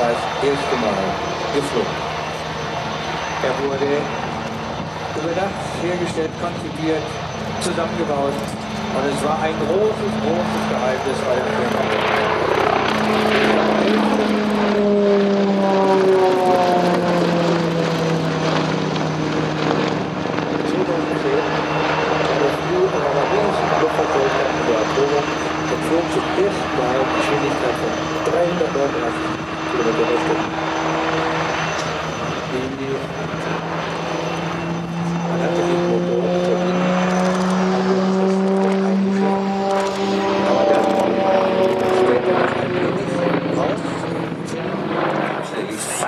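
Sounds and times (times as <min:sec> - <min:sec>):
helicopter flying overhead: 0:00.0 - 0:46.0.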